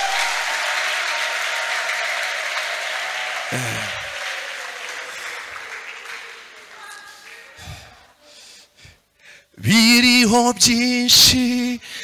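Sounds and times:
congregation clapping: 0:00.0 - 0:08.1.

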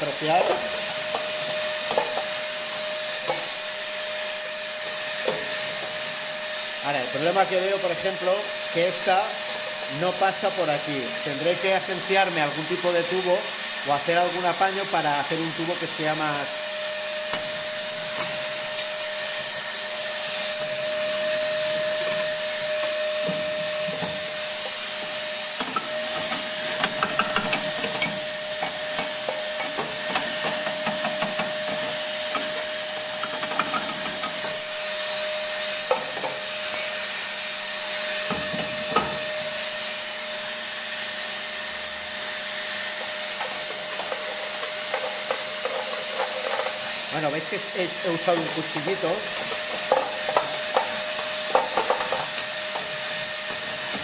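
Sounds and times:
vacuum motor whining: 0:00.0 - 0:54.0
nozzle sucking ash: 0:16.4 - 0:37.3.

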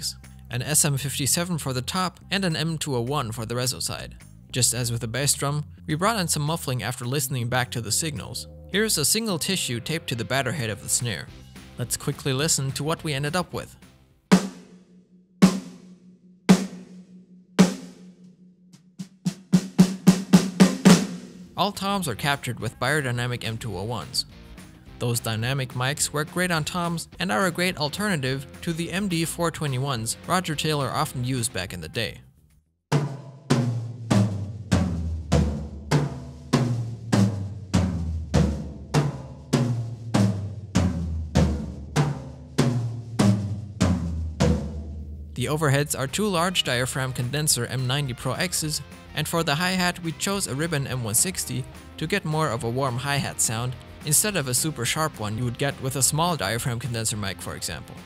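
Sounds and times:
muffled snare drum hits: 0:32.9 - 0:45.3.

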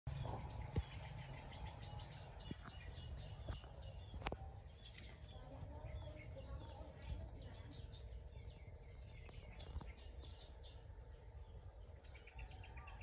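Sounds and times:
small birds chirping: 0:00.1 - 0:13.0.

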